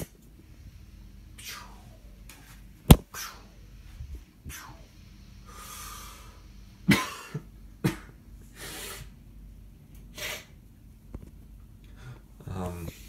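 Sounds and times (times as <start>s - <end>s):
person coughing: 6.9s - 8.1s.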